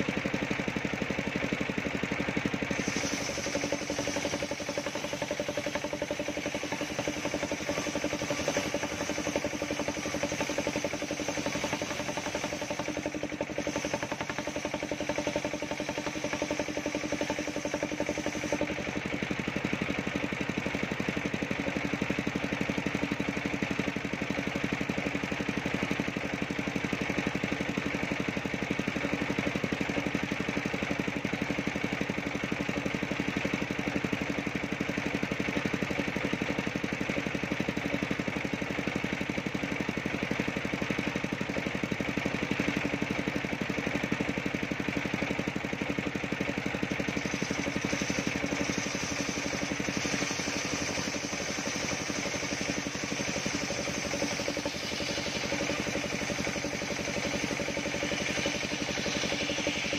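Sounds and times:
engine pulsing: 0.0s - 59.9s
circular saw cutting wood: 2.4s - 19.8s, 46.7s - 59.9s.

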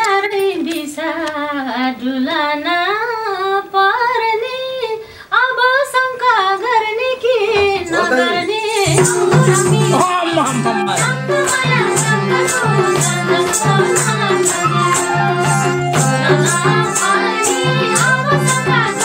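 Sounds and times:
woman singing into a microphone: 0.0s - 19.0s
drum strokes: 7.5s - 19.0s.

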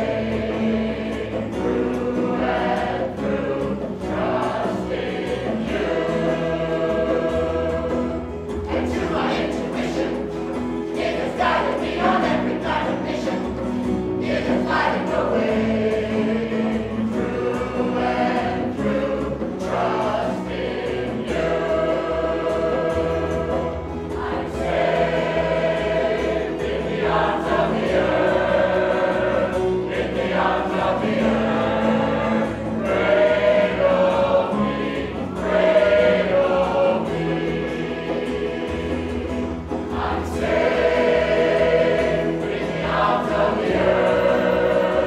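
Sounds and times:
choir singing a chant: 0.0s - 45.0s
guitar accompaniment: 0.0s - 45.0s.

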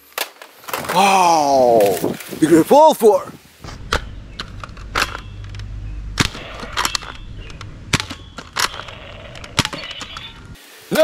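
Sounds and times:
blaster priming clicks: 3.7s - 10.6s.

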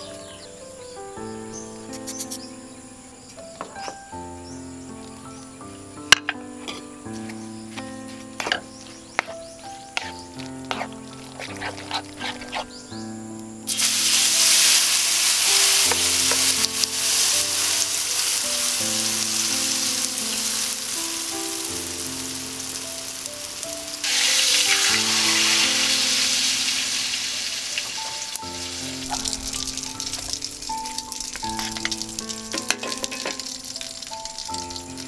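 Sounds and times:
batter sizzling in hot oil: 13.6s - 35.0s.

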